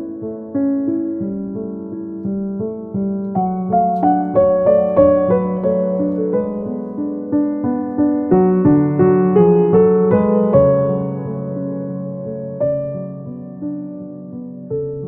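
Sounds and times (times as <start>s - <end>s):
gentle piano music: 0.0s - 15.0s.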